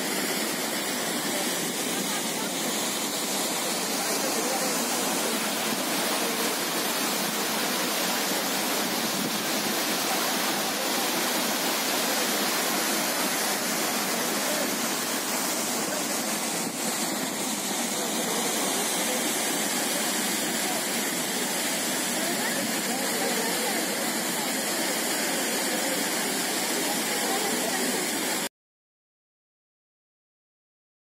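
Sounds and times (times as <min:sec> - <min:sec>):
waterfall rushing onto rock: 0:00.0 - 0:28.5.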